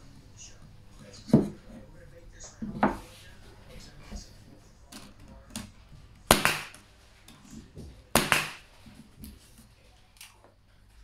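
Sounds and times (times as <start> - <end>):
pneumatic pin nailer firing: 6.3 - 6.8, 8.2 - 8.7.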